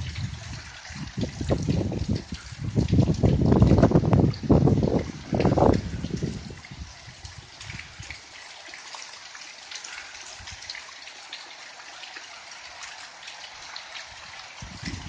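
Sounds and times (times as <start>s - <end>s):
heavy rain hissing: 2.5s - 8.7s.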